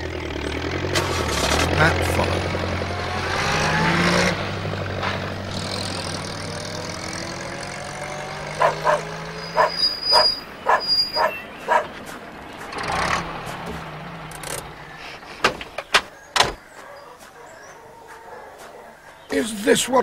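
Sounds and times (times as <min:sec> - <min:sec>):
vehicle engines driving by: 0:00.0 - 0:20.0
short sharp yelps: 0:08.6 - 0:11.9.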